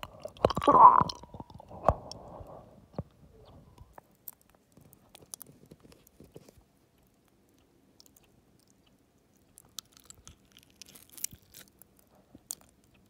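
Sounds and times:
wet saliva clicks: 0:00.0 - 0:02.2.

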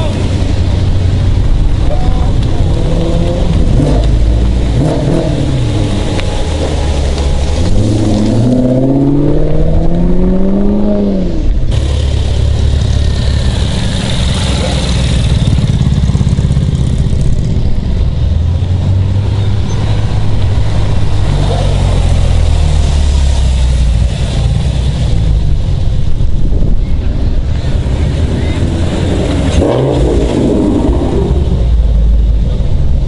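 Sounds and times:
sports car engines running: 0:00.0 - 0:33.0
engine accelerating: 0:27.5 - 0:33.0.

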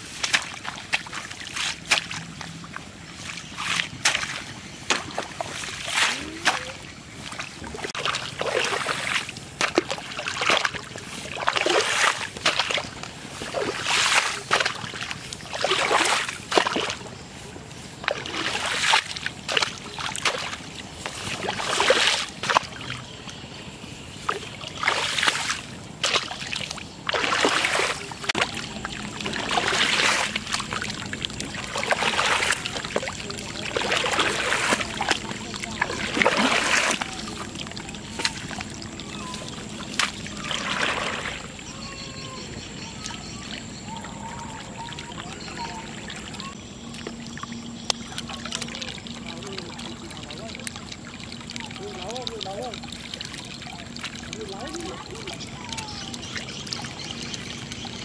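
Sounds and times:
muddy water splashing: 0:00.0 - 0:58.0.

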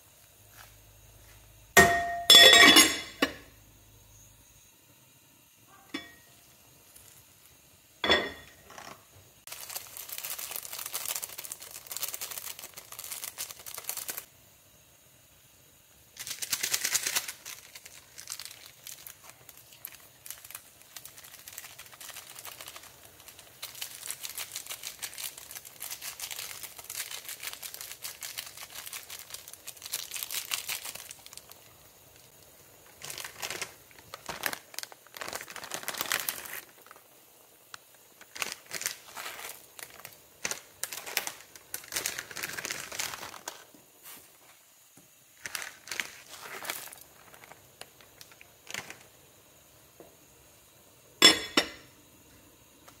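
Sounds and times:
foil sachets crinkling: 0:08.6 - 0:14.3, 0:16.1 - 0:44.4, 0:45.3 - 0:49.4.

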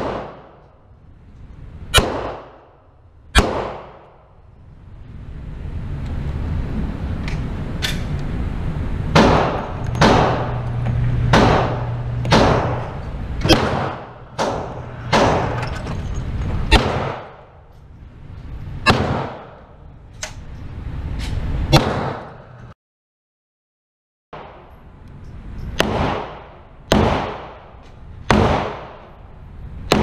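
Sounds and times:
gunshots echoing indoors: 0:00.0 - 0:00.8, 0:01.9 - 0:04.4, 0:09.1 - 0:15.8, 0:16.7 - 0:17.6, 0:18.8 - 0:19.8, 0:21.7 - 0:22.4, 0:25.8 - 0:29.2
steady low hum: 0:00.0 - 0:22.8, 0:24.4 - 0:30.0.

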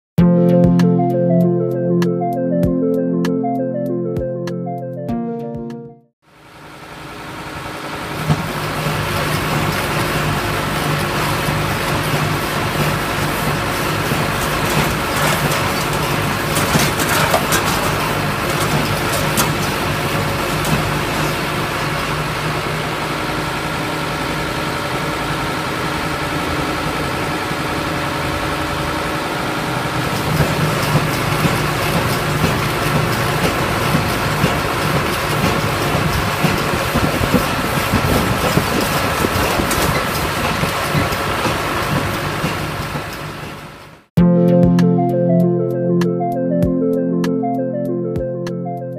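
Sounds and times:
shaking platform mechanical hum: 0:06.9 - 0:23.0, 0:29.7 - 0:43.8
knocks and rattles: 0:14.0 - 0:19.8.

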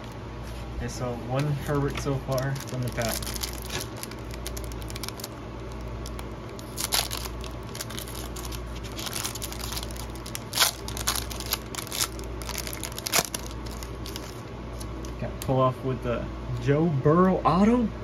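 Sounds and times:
foil wrapper crinkling and tearing: 0:01.7 - 0:15.1.

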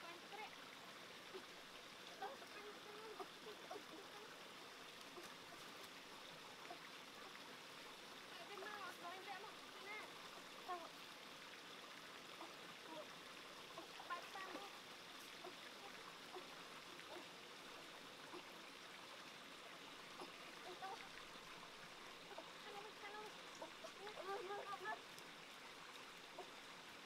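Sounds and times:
shallow rocky stream trickling: 0:00.0 - 0:27.0.

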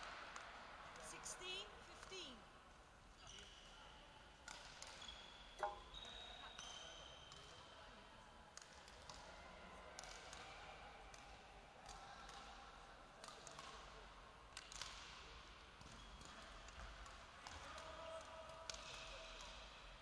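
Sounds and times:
rackets hitting shuttlecock: 0:04.4 - 0:06.0, 0:06.6 - 0:07.6, 0:08.5 - 0:09.3, 0:10.0 - 0:10.5, 0:11.1 - 0:12.6, 0:13.2 - 0:14.0, 0:14.6 - 0:19.7.

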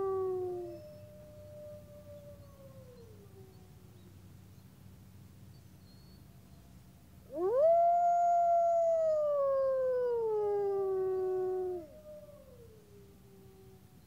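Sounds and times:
wolves howling: 0:00.0 - 0:03.7, 0:07.3 - 0:13.8.

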